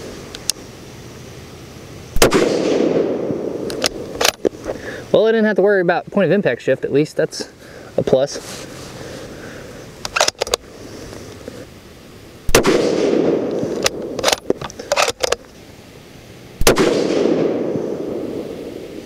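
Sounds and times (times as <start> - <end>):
rifle shots: 2.2 - 4.4, 12.5 - 14.4, 16.6 - 18.4
rifle bolt metallic clicks: 3.6 - 4.5, 10.0 - 10.6, 13.5 - 15.5.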